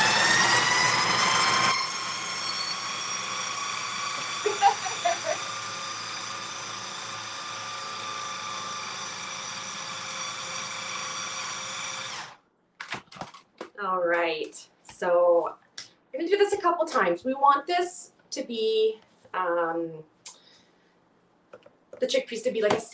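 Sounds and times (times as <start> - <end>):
food processor motor whine: 0.0 - 12.4.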